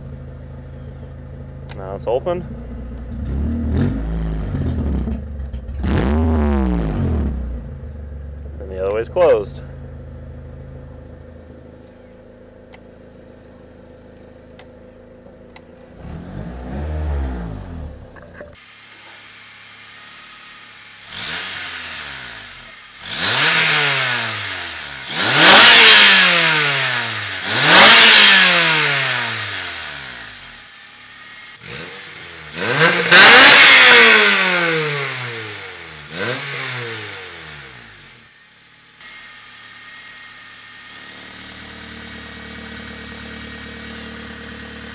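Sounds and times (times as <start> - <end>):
car engine idling: 0.0 - 23.4, 28.8 - 33.5, 37.3 - 44.9
car engine revving: 1.8 - 44.9.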